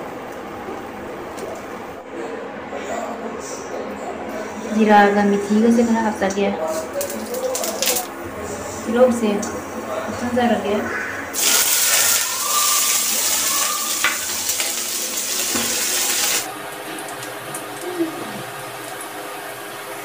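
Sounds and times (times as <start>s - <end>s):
onions sizzling in hot oil: 11.4s - 16.8s.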